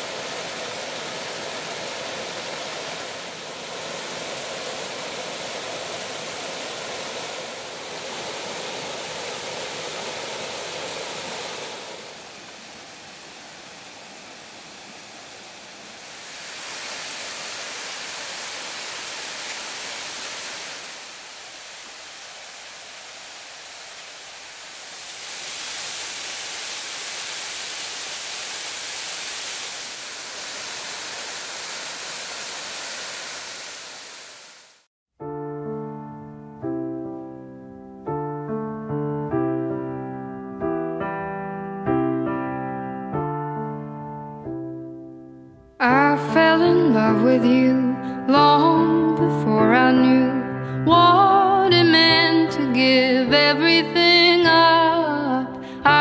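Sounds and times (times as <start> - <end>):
waterfall rushing: 0.0 - 34.9.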